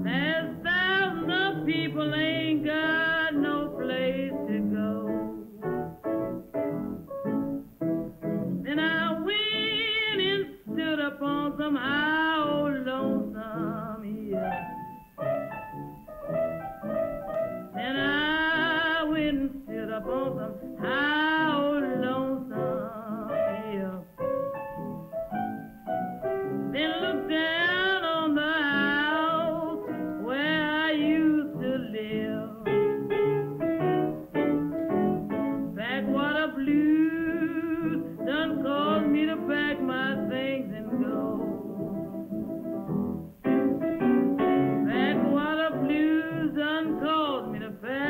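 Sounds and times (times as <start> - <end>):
woman singing blues: 0.0 - 5.8, 8.5 - 14.7, 17.7 - 24.3, 26.6 - 33.2, 35.4 - 42.5, 44.4 - 48.0
piano accompaniment: 0.0 - 48.0.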